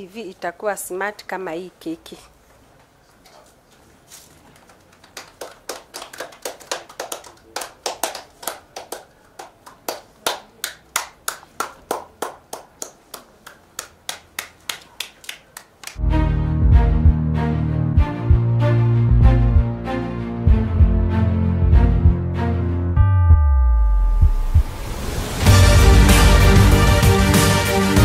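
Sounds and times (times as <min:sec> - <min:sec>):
people clapping in rhythm: 0:04.6 - 0:16.0
loud music: 0:16.0 - 0:28.0.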